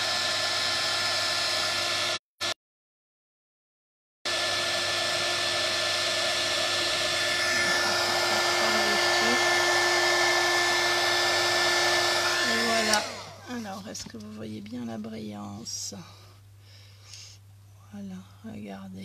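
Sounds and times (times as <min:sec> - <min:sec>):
heat gun blowing: 0:00.0 - 0:02.2, 0:04.3 - 0:13.7.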